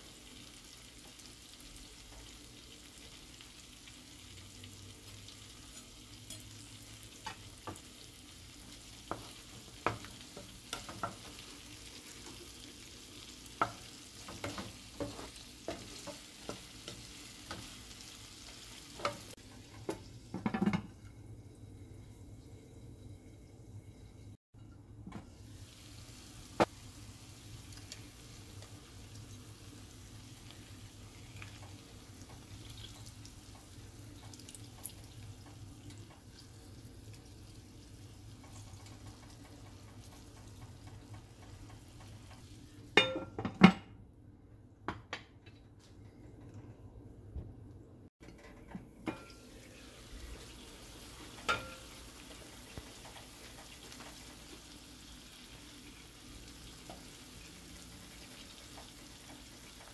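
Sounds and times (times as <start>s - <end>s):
food sizzling in a frying pan: 0.0s - 24.4s, 25.1s - 43.2s, 49.0s - 59.9s
pan lid and utensils clinking: 18.8s - 21.0s, 43.0s - 44.0s, 48.2s - 49.5s, 51.3s - 52.1s.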